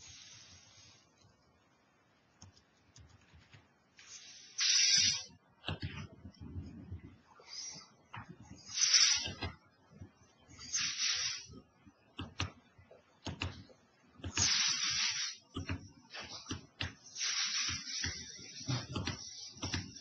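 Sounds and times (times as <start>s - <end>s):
breathy hiss on microphone: 0.0s - 1.2s, 4.0s - 5.3s, 6.6s - 9.4s, 10.5s - 11.6s, 14.3s - 15.5s, 16.1s - 20.0s
computer mouse clicking: 2.4s - 3.6s, 12.2s - 12.6s.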